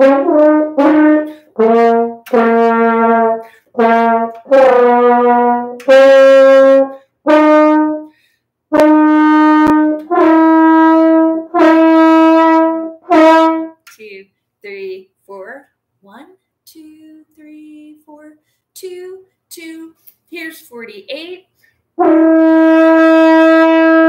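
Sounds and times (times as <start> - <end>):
french horn slow melody: 0.0 - 13.8, 22.0 - 24.0
player breathing: 8.1 - 8.6.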